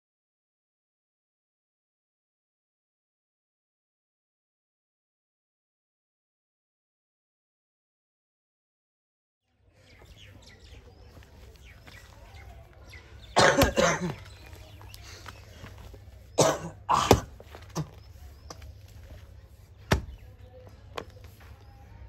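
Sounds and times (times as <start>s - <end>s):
hoe chopping into loose soil: 19.8s - 20.2s.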